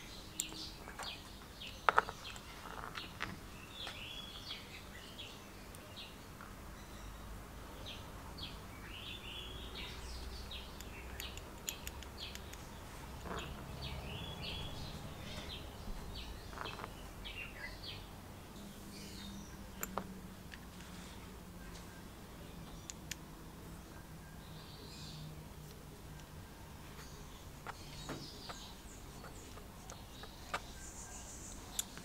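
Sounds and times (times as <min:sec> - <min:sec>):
small birds chirping: 0:00.0 - 0:32.0
light clicks of brass parts: 0:00.3 - 0:04.1, 0:09.8 - 0:14.0, 0:19.2 - 0:21.0, 0:22.6 - 0:23.3, 0:31.5 - 0:32.0.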